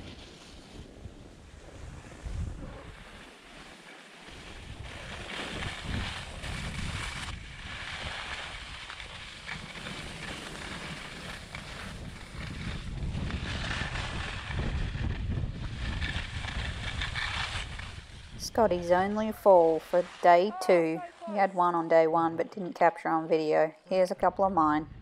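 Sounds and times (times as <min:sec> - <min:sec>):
skis scraping on snow: 0:00.0 - 0:22.2
wind buffeting microphone: 0:01.0 - 0:03.1, 0:04.4 - 0:19.8, 0:24.2 - 0:25.0.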